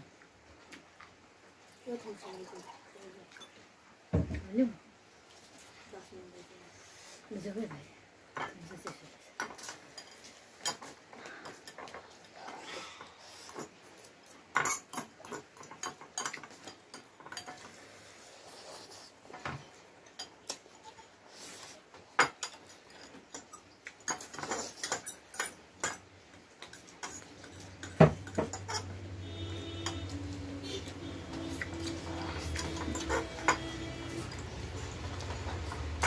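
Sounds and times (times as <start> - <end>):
cutlery clinking on bowls: 8.3 - 12.6, 13.5 - 17.8, 22.2 - 36.0
noodles slurped and chewed: 29.3 - 36.0.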